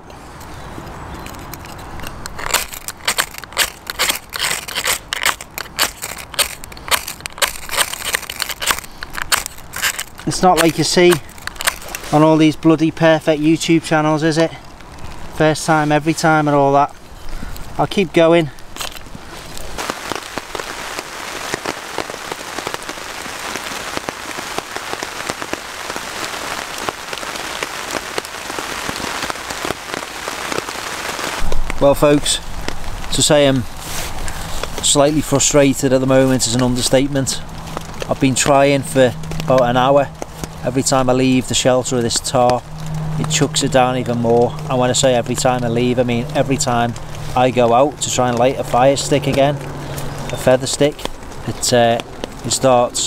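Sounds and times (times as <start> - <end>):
raindrops striking a tarp: 0.0 - 53.0
ferro rod scraped with striker: 1.3 - 10.8
heavy rain hissing: 1.4 - 51.8.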